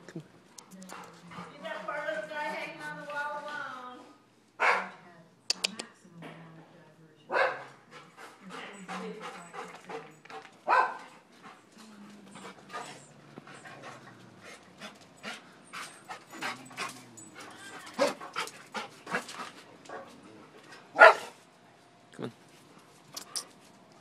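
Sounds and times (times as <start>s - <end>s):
dog panting: 0.6s - 3.6s, 7.8s - 20.1s.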